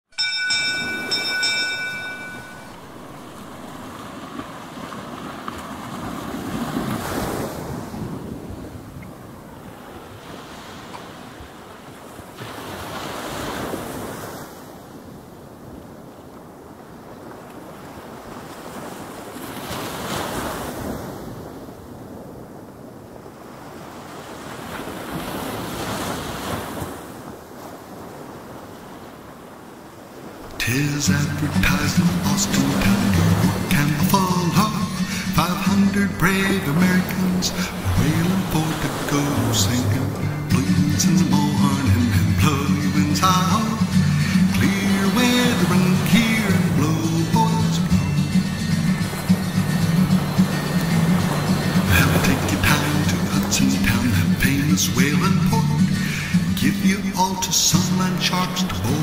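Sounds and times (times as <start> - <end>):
wind: 0.0 - 59.0
bell ringing: 0.1 - 3.9
surf surging: 0.2 - 15.7, 16.5 - 59.0
waves washing: 0.2 - 59.0.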